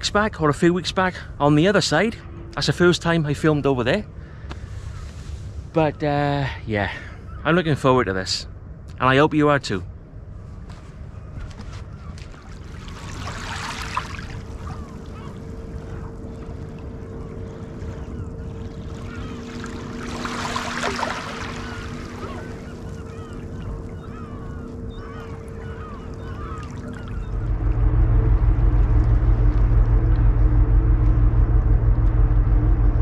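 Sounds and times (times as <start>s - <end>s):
steady low hum: 0.0s - 33.0s
distant bird calls: 1.5s - 8.8s, 9.9s - 30.2s
wind rumbling on microphone: 9.9s - 33.0s
small waves washing in: 12.1s - 27.3s.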